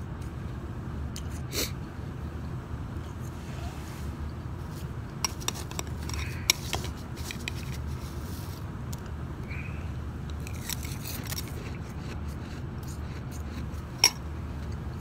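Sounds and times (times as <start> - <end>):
ice being chewed and crunched: 10.3 - 15.0.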